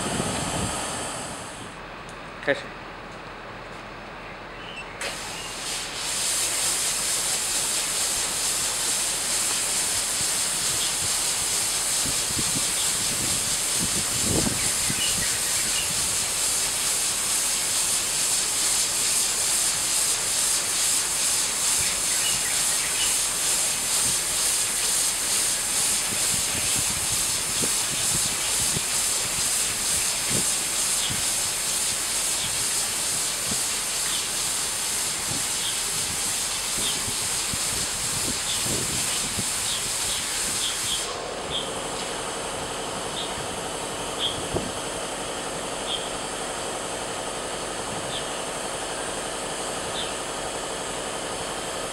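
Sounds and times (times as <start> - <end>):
spray nozzles hissing: 5.0 - 42.6.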